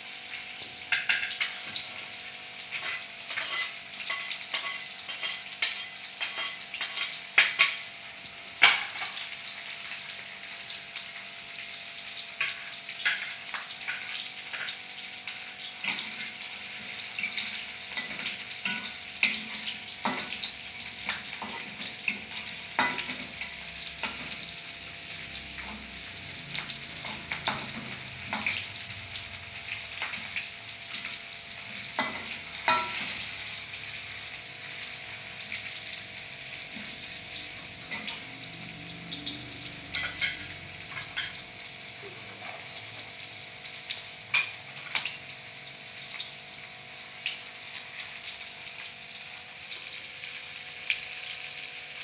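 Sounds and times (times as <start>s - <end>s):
spices sizzling in hot oil: 0.0s - 52.0s
metal spatula scraping wok: 2.8s - 7.2s.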